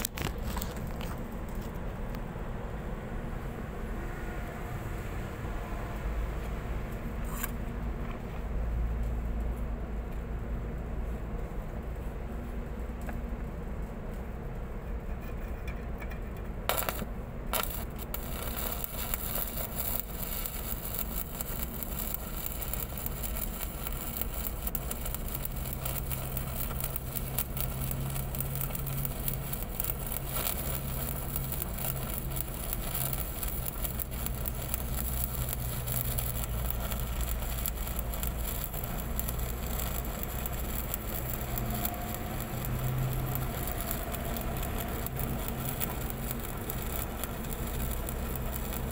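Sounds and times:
welding arc crackling: 0.0 - 1.6, 15.0 - 48.9.

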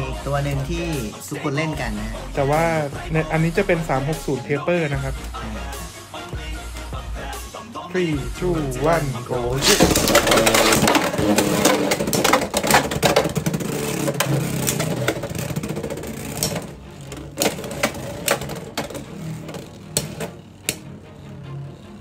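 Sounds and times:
spinning tops scraping and clashing: 9.6 - 20.4.

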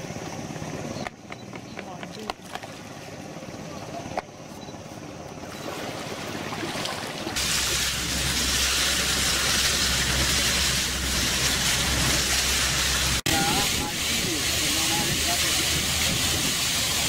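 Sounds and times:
boat engine drone: 0.0 - 17.0
riverside noise: 0.0 - 17.0
rushing water and wind: 5.4 - 17.0.

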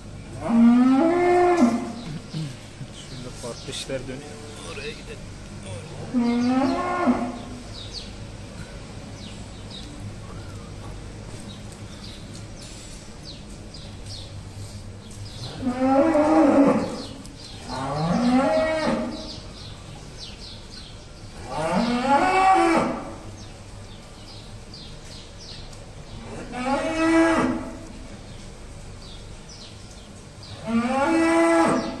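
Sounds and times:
cattle mooing: 0.4 - 2.0, 15.4 - 17.1, 17.7 - 19.3, 30.6 - 32.0.

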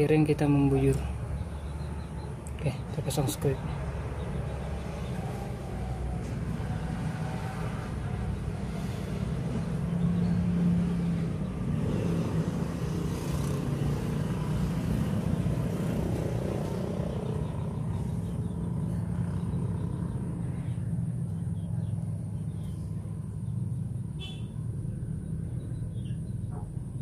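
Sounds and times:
low engine rumble: 14.0 - 27.0.

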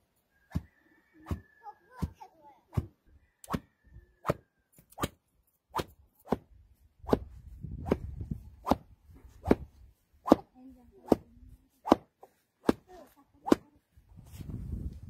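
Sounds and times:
stick beating wool: 0.5 - 1.4, 2.0 - 3.6, 7.1 - 13.7.

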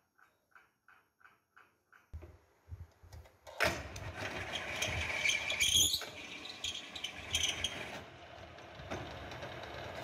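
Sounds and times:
high squeal: 4.6 - 8.0.

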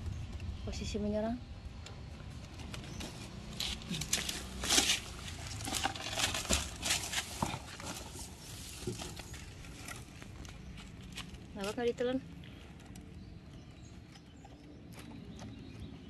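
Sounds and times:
owl rustling and scraping: 2.6 - 11.8.

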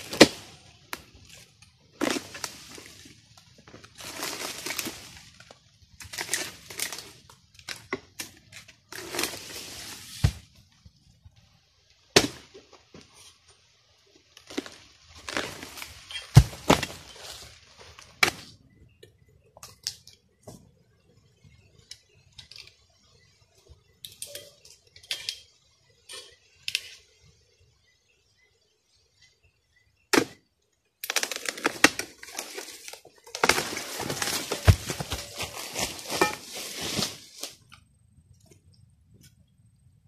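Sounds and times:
palm fronds rustling: 0.0 - 11.1, 12.1 - 18.6, 31.0 - 37.8.

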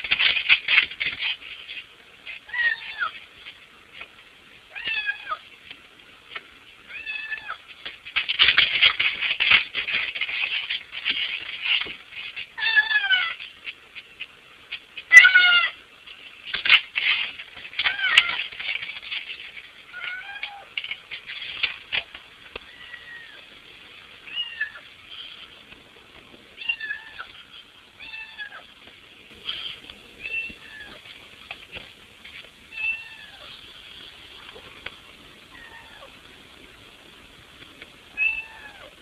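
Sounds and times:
cat meowing: 2.5 - 3.1, 4.7 - 5.4, 6.9 - 7.6, 20.0 - 20.7, 22.7 - 23.4, 24.3 - 24.9, 26.6 - 27.3, 28.0 - 28.7, 30.2 - 31.0, 32.7 - 33.5, 35.5 - 36.2, 38.1 - 39.0.

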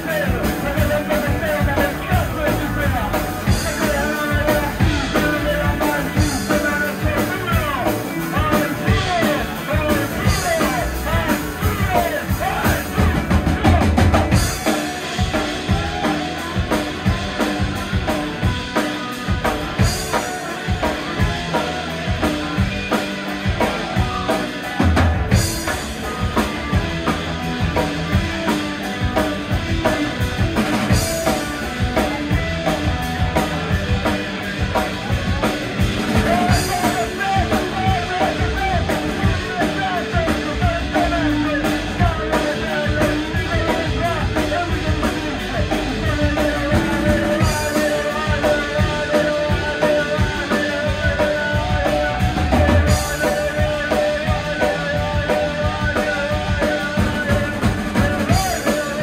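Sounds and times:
drum kit beat: 0.0 - 59.0
electric bass: 0.0 - 59.0
electric guitars: 0.0 - 59.0.

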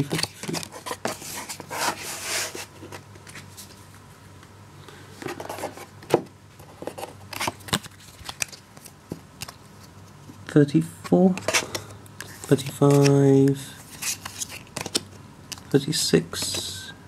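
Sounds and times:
cards rustling: 0.0 - 3.8, 6.6 - 10.4, 11.0 - 16.8.

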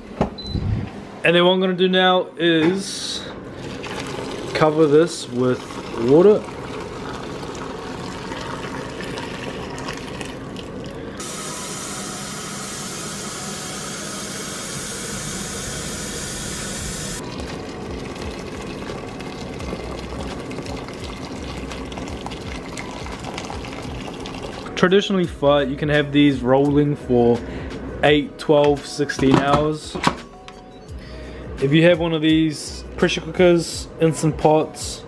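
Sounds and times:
water pouring from kettle into pot: 3.6 - 11.0, 17.2 - 24.8
kitchen tap running: 3.6 - 13.3, 14.2 - 24.8.

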